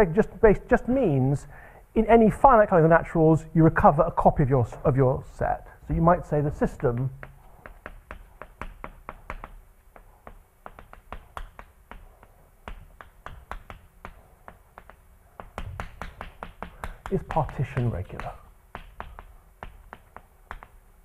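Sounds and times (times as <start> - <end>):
chalk tapping on blackboard: 5.9 - 21.0.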